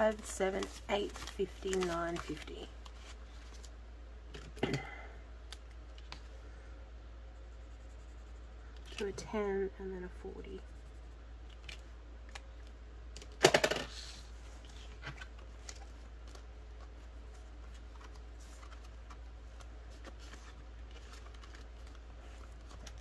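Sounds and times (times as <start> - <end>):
plastic pockets rustling: 0.0 - 3.8.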